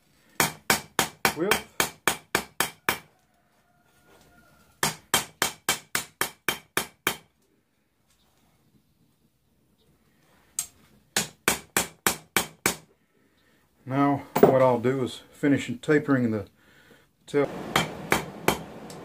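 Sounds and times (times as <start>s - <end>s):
hammer striking steel on anvil: 17.7s - 18.6s.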